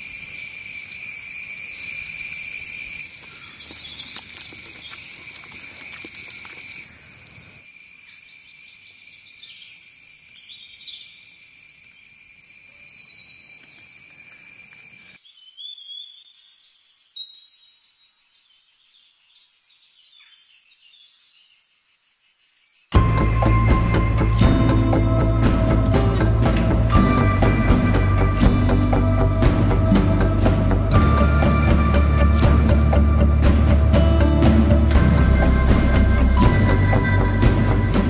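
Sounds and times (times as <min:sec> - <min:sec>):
insects shrilling: 0:00.0 - 0:15.2
pulsing insect call: 0:00.0 - 0:38.0.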